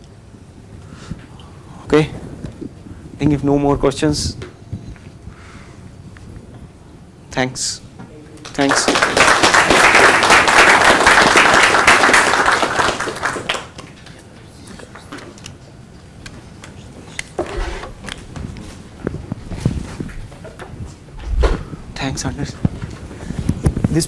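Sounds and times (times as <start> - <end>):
audience applauding: 8.4 - 14.2.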